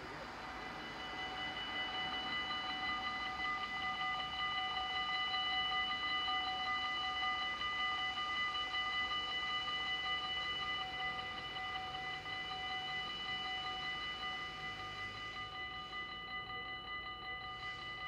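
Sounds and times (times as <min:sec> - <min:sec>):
level-crossing warning bells: 0:00.0 - 0:18.0.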